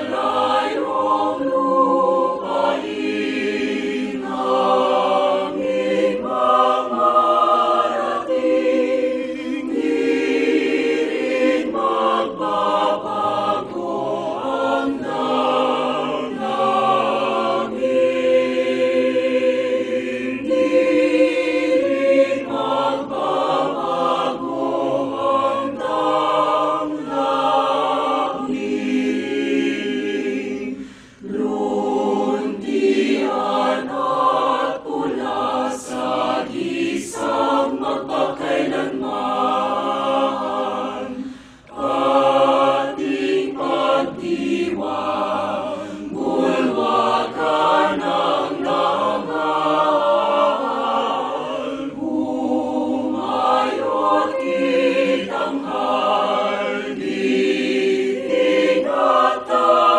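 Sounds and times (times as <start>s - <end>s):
choir singing slow song: 0.0s - 59.9s
singers breathing: 30.7s - 31.4s, 41.2s - 41.8s, 45.7s - 46.2s.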